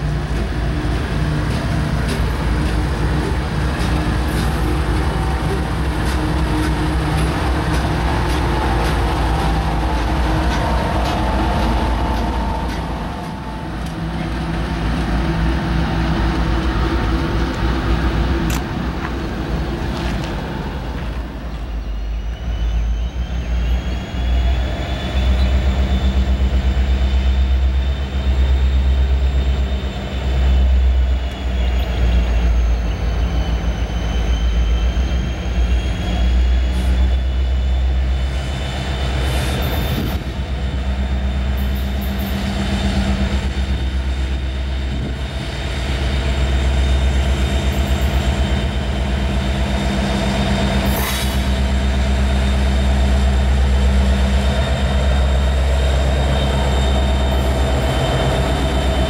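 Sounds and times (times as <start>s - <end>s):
diesel locomotive engine drone: 0.0s - 59.0s
low rumble of freight train: 0.0s - 59.0s
high wavering squeal: 21.6s - 59.0s.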